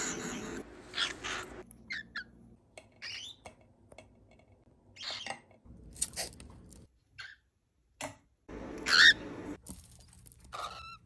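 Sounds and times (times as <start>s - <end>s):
cockatiel calls and chirps: 1.0s - 2.3s, 8.8s - 9.2s.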